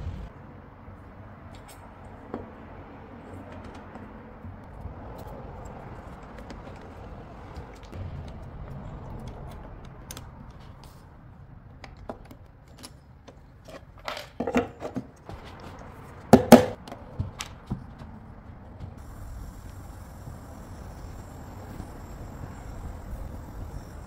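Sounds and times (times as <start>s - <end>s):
sharp wooden knocks: 16.3s - 19.0s.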